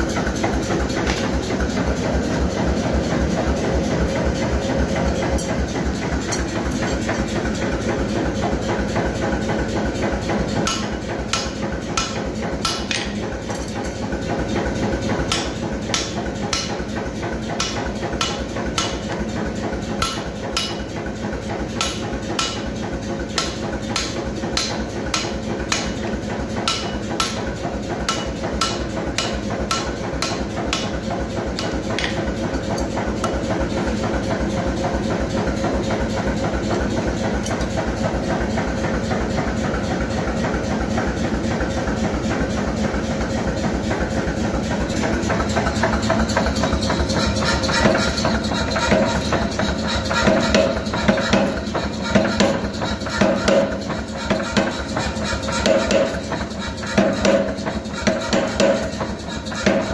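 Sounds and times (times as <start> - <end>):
gas forge running: 0.0 - 59.9
hammer striking hot steel: 5.0 - 7.3, 10.6 - 14.0, 15.1 - 19.3, 19.9 - 20.9, 21.7 - 22.7, 23.3 - 33.8, 46.2 - 59.9.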